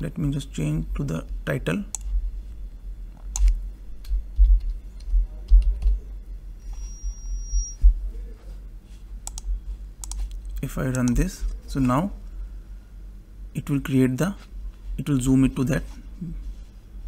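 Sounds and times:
keyboard keystrokes: 0:09.2 - 0:11.2
mouse clicks: 0:09.2 - 0:11.2.

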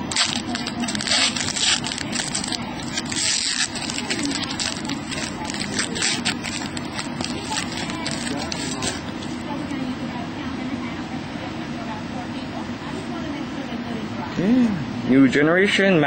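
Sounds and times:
trading cards rustling: 0:00.0 - 0:09.3
foil wrapper crinkling: 0:00.0 - 0:09.4.

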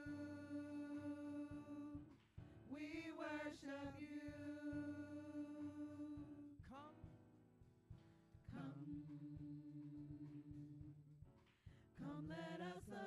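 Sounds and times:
group singing slow worship song: 0:00.0 - 0:06.7, 0:08.5 - 0:11.0, 0:12.0 - 0:13.0.

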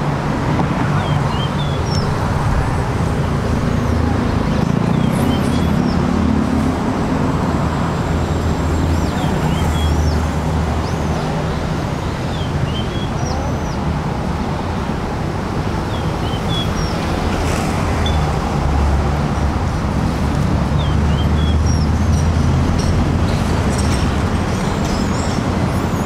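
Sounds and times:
small birds chirping: 0:15.9 - 0:17.1.

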